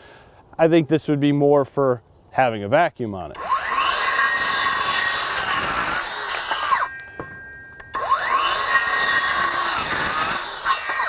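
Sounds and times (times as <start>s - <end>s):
circular saw cutting wood: 3.3s - 11.0s.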